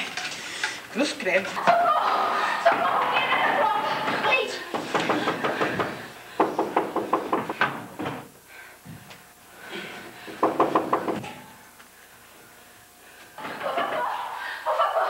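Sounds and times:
rapid knocking on wooden door: 4.7s - 8.2s, 10.3s - 11.3s.

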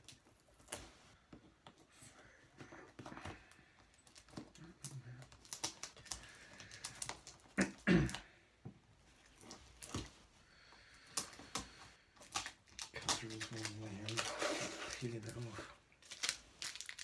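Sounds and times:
handling plastic mailer package: 11.0s - 17.0s.

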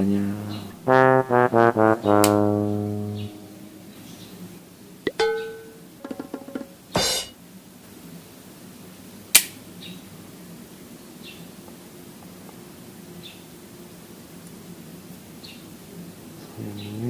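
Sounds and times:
sharp snap: 9.4s - 9.6s.

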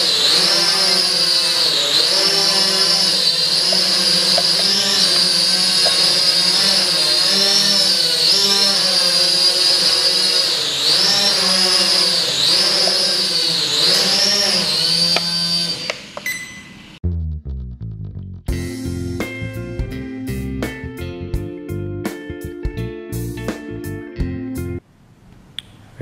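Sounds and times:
drone motors whining: 0.0s - 17.0s
guitar music: 18.5s - 24.8s.

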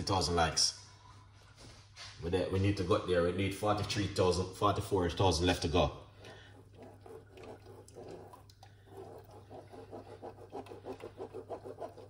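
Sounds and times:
low steady hum: 6.0s - 12.0s
spoon scraping in mesh strainer: 6.2s - 12.0s.

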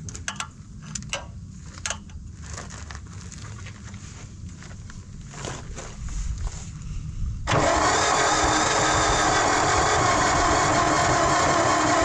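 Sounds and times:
starter cranking engine: 7.5s - 12.0s.

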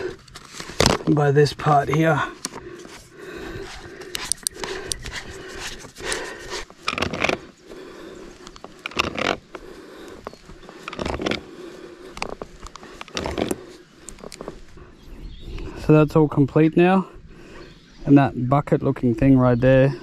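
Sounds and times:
plastic fitting creaking and scraping: 0.0s - 7.5s, 8.4s - 14.6s.

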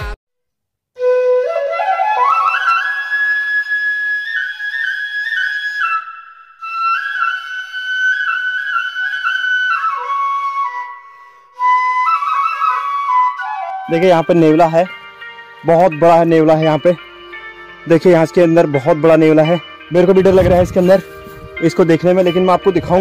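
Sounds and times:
solo flute melody: 1.0s - 15.2s, 19.4s - 23.0s.

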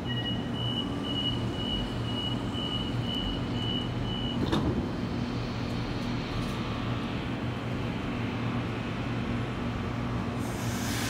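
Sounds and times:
door warning beeps: 0.0s - 4.5s
low hum of stationary train: 0.0s - 11.0s
sliding doors shutting thump: 4.4s - 4.9s.

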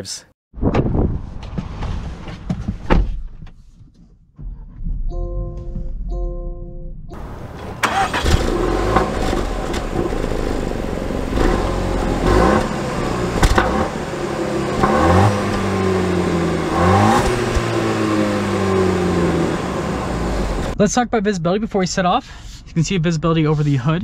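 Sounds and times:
car engine starting and idling: 4.4s - 20.8s.

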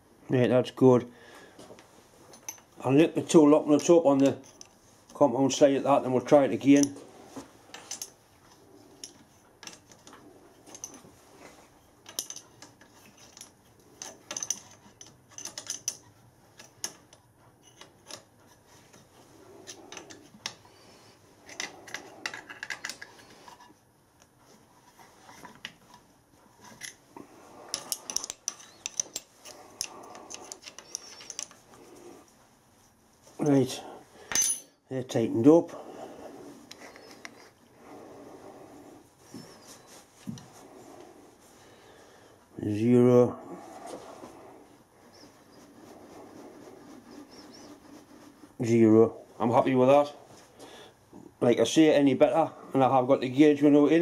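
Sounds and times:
metallic clicks and clinks: 7.7s - 8.2s, 9.0s - 11.0s, 12.0s - 18.3s, 27.6s - 31.6s
hand tool scraping metal: 26.6s - 32.2s, 36.1s - 38.6s, 43.8s - 48.8s.

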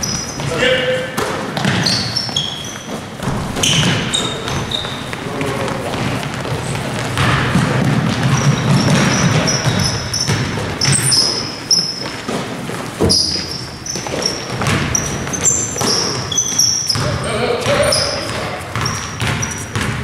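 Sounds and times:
feet pounding court: 0.0s - 20.0s
sneakers squeaking: 0.0s - 20.0s
basketball bouncing: 1.2s - 20.0s.

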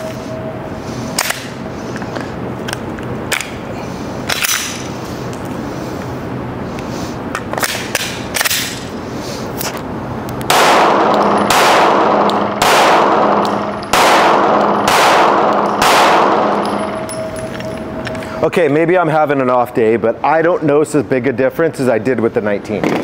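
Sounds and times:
sharp cracks: 9.6s - 18.1s
pistol shots with echo: 10.5s - 17.3s.

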